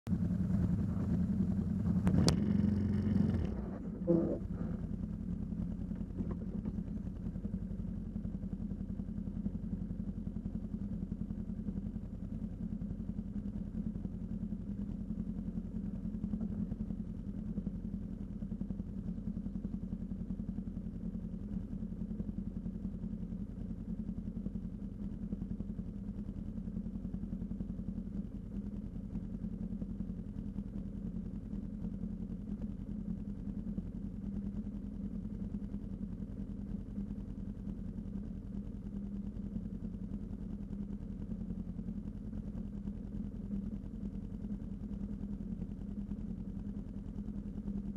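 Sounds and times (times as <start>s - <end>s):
atv engine idling: 0.1s - 47.9s.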